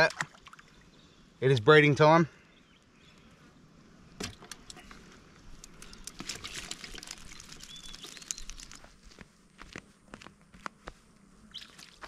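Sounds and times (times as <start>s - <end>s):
hands handling wire net: 4.2s - 9.3s.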